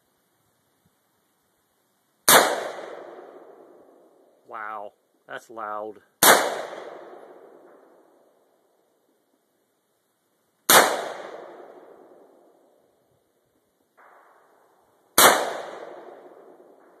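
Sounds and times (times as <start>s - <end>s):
gunshots with echoing tail: 2.3s - 3.8s, 6.2s - 8.0s, 10.7s - 12.2s, 15.2s - 17.0s.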